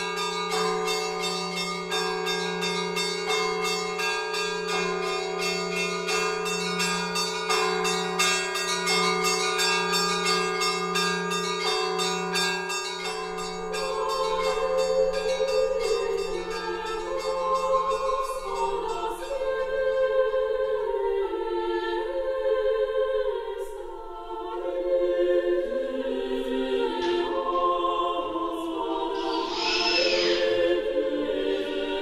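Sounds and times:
church bells ringing: 0.0s - 20.9s, 25.6s - 31.8s
choir voices: 13.5s - 32.0s.

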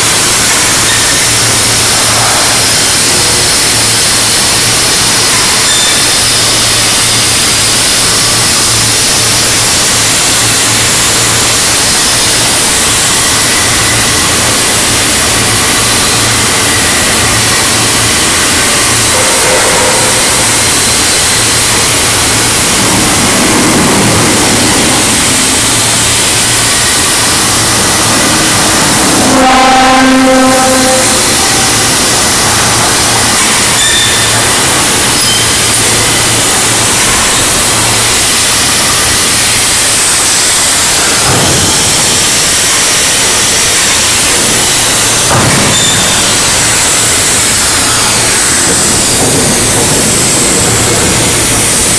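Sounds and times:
industrial workshop noise: 0.0s - 51.9s
low machine hum: 0.0s - 51.9s
horn-like pitched tone: 19.0s - 20.9s, 28.1s - 32.4s.

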